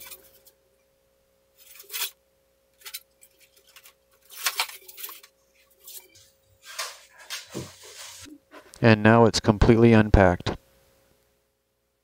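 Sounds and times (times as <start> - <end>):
faint steady hum: 0.0 - 12.0
styrofoam scraping and rubbing: 1.6 - 2.2, 2.8 - 8.3.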